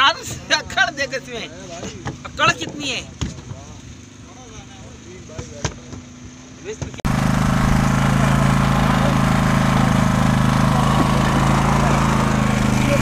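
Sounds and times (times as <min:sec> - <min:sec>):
boat engine droning: 0:06.0 - 0:13.0.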